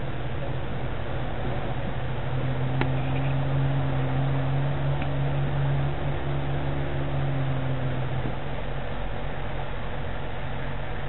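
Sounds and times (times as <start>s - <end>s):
engine idling low hum: 0.0s - 11.0s.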